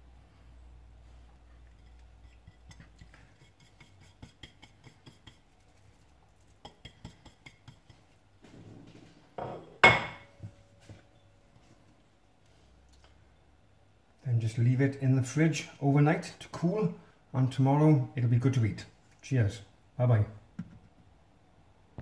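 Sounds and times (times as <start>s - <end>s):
fingers tapping on a plate: 2.2s - 5.7s, 6.6s - 8.1s.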